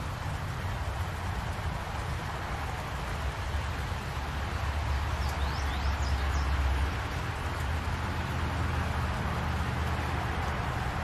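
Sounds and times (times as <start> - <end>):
steady rain hiss: 0.0 - 11.0
bird chirping: 5.1 - 6.6.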